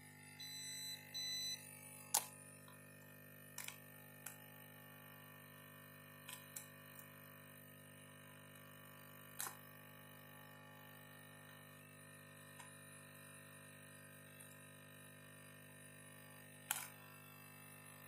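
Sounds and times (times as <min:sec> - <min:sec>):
short electronic beeps: 0:00.4 - 0:01.6.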